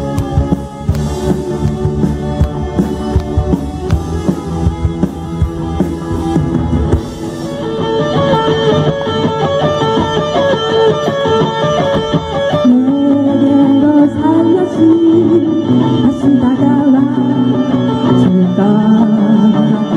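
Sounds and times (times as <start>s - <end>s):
bass: 0.0s - 10.4s
drum kit: 0.0s - 14.5s
electric guitars: 0.0s - 19.9s.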